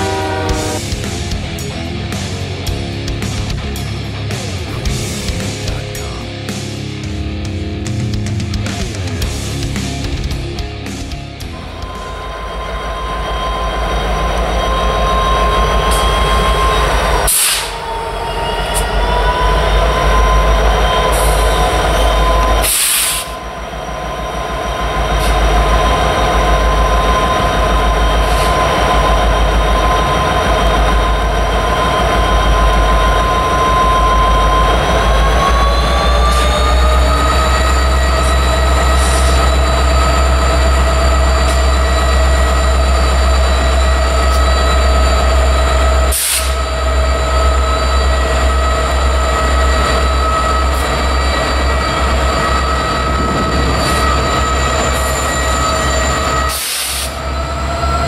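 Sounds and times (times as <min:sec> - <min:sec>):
diesel locomotive high whine: 0:00.0 - 0:58.0
short air hisses: 0:17.3 - 0:17.8, 0:22.6 - 0:23.3.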